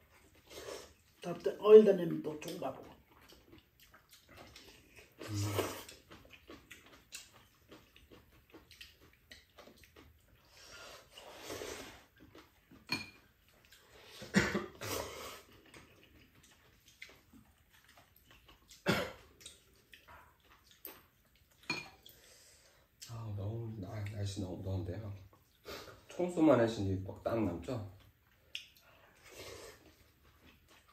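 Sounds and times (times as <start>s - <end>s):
noodles being slurped: 3.3s - 12.5s
person coughing: 14.2s - 15.0s, 18.8s - 19.2s.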